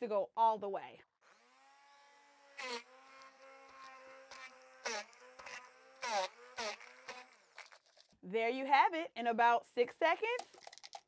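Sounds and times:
hand blender motor whining: 1.2 - 8.0
ice crunching in blender: 2.6 - 8.2.

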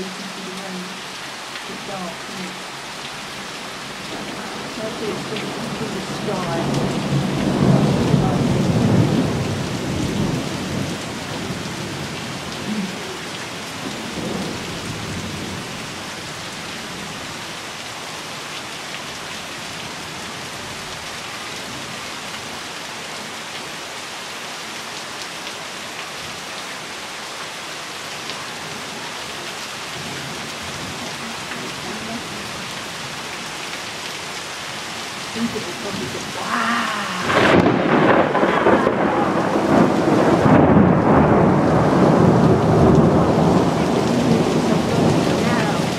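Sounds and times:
steady rain: 0.0 - 45.9
water pouring off roof: 1.0 - 23.7, 27.9 - 45.9
thunder rolling: 4.1 - 12.1, 36.5 - 45.9.

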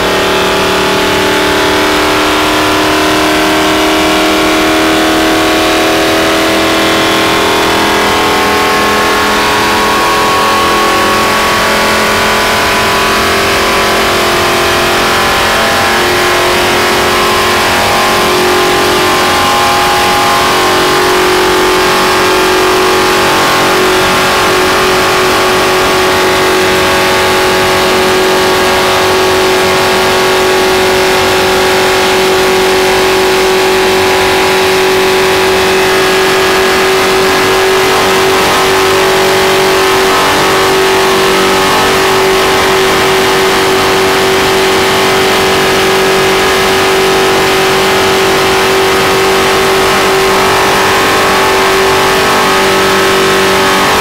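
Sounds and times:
race car engine at high revs: 0.0 - 54.0.

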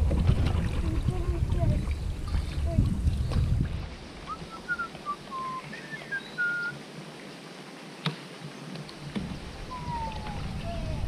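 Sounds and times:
whistled notes: 4.3 - 6.8.

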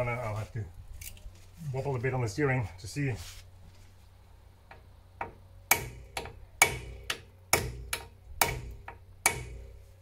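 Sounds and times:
hammer striking steel: 5.2 - 9.7.

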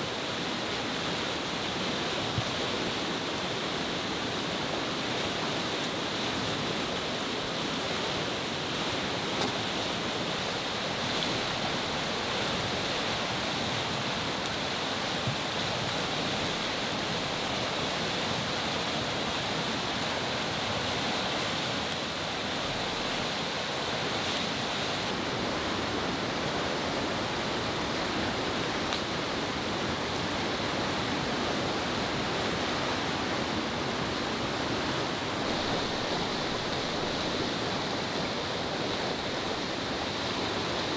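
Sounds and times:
fast river rushing: 0.0 - 40.9.

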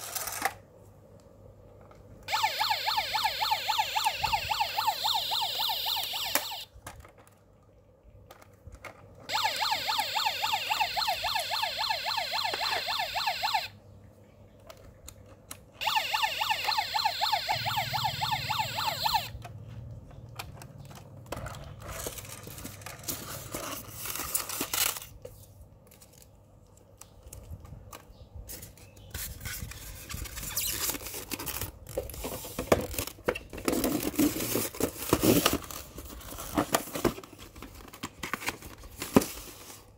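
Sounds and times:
electronic siren warble: 2.3 - 6.7, 9.3 - 13.7, 15.8 - 19.4
paper packaging rustling: 21.4 - 26.4, 28.5 - 39.9.

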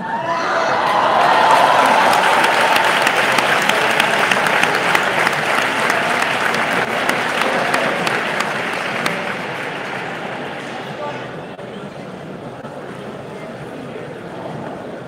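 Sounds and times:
crowd applauding: 0.5 - 11.4.

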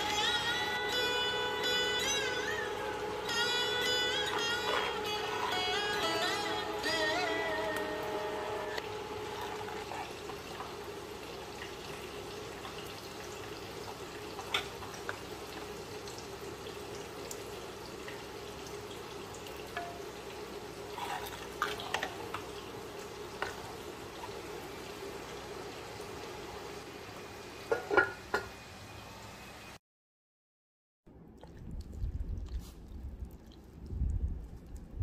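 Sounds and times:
ladle stirring liquid in a pot: 8.8 - 13.2, 19.5 - 24.4
ladle clinking against pot: 27.7 - 28.5.

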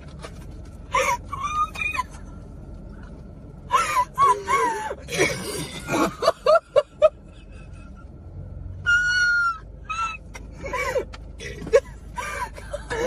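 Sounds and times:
women laughing and squealing: 3.7 - 5.1.

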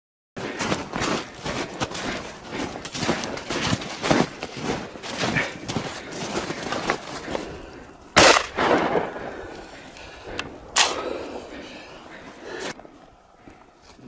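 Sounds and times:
footsteps crunching in snow: 0.4 - 8.0
shotgun shot: 8.2 - 9.2, 10.8 - 11.1.

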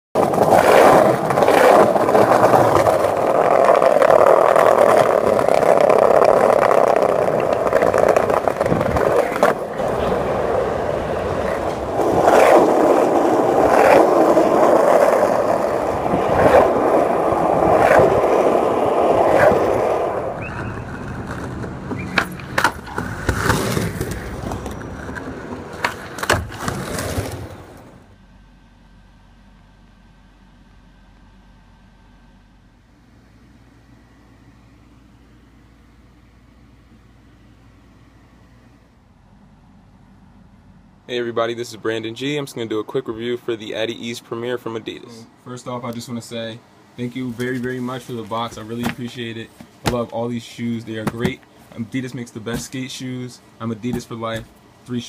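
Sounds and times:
skateboard clacks: 0.2 - 28.0, 51.0 - 51.4
skateboard wheels rolling: 0.2 - 28.1, 47.0 - 55.0.

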